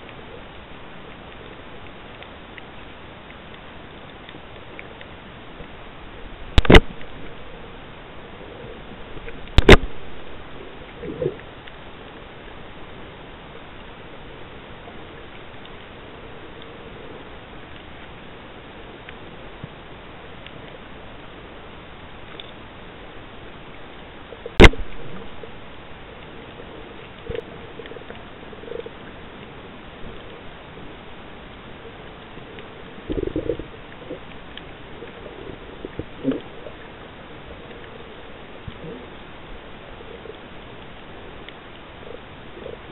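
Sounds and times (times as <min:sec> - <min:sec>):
faint clicks: 0:00.0 - 0:06.0, 0:08.6 - 0:10.0, 0:10.8 - 0:42.9
water gurgling: 0:00.0 - 0:42.9
loud sharp click: 0:06.6 - 0:07.0, 0:24.6 - 0:24.8.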